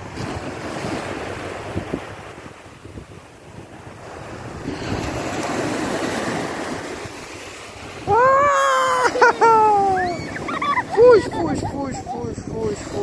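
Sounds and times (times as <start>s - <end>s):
small waves washing up beach: 0.0s - 13.0s
child calling out: 8.1s - 11.3s.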